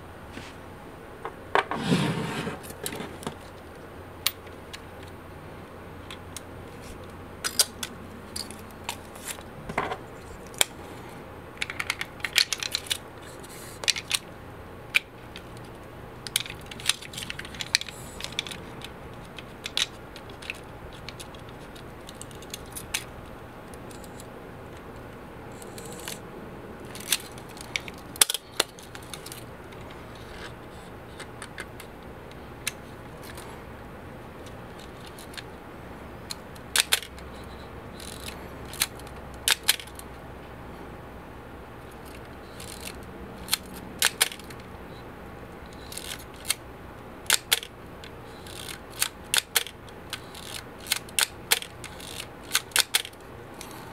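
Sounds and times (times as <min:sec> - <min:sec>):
film advance ratcheting: 0:14.9 - 0:23.1, 0:23.8 - 0:24.3, 0:25.5 - 0:26.2, 0:26.8 - 0:29.5, 0:36.3 - 0:40.0, 0:42.0 - 0:44.6, 0:45.7 - 0:46.6, 0:47.2 - 0:53.8
camera mechanical clicks: 0:38.0 - 0:40.0, 0:48.4 - 0:53.2.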